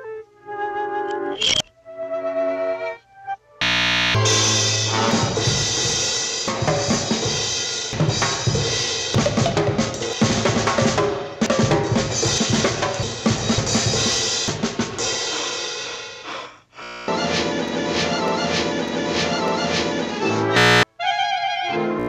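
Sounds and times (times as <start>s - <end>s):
music with busy drum beat: 4.2s - 16.1s.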